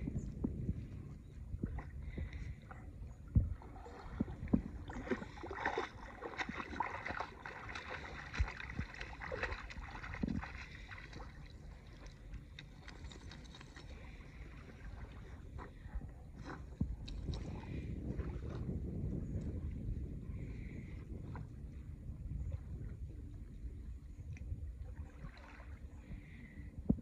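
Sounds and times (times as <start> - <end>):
low wind rumble: 0.0 - 27.0
seawater lapping and sloshing: 0.0 - 27.0
dog splashing through water: 4.8 - 13.9.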